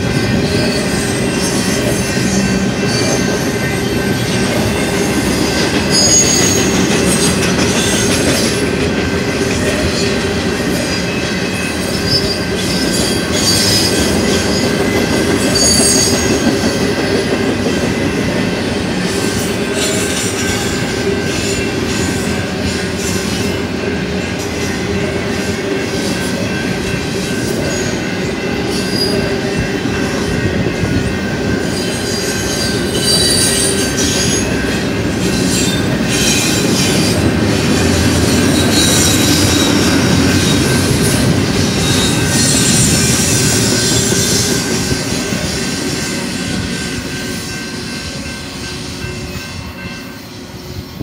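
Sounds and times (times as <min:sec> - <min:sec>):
train wheels clattering on rails: 0:00.0 - 0:51.0
high wheel squeal: 0:05.9 - 0:08.4, 0:31.7 - 0:46.7.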